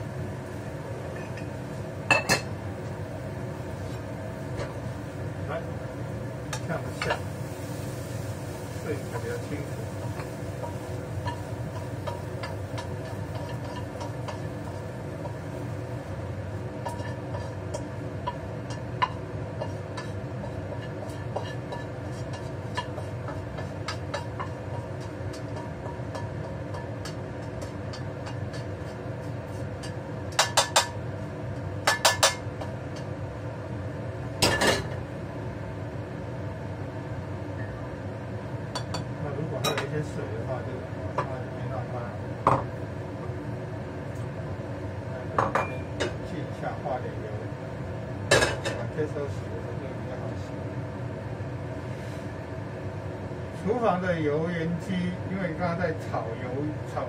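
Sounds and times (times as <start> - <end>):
range hood fan humming: 0.0 - 57.0
spatula scraping and tapping wok: 6.5 - 33.2.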